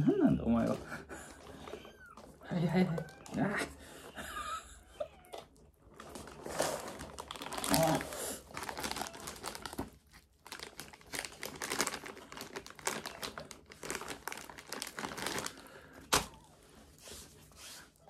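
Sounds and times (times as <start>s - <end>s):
plastic pouch crinkling: 5.8s - 16.6s.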